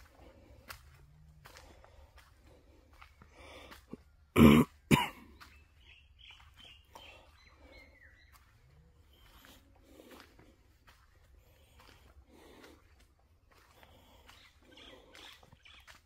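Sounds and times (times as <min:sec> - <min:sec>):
person coughing: 0:04.4 - 0:05.3.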